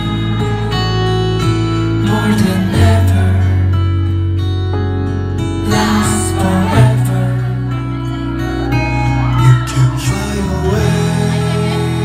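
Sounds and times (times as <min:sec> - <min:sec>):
backing track with deep bass: 0:00.0 - 0:12.0
man singing into a microphone: 0:01.7 - 0:04.2, 0:05.5 - 0:12.0.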